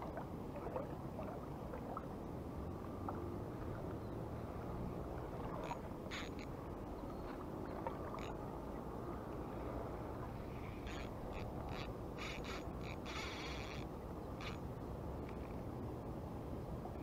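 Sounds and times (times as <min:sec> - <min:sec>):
wind and water rushing: 0:00.0 - 0:17.0
spinning reel buzzing zips: 0:10.9 - 0:14.6.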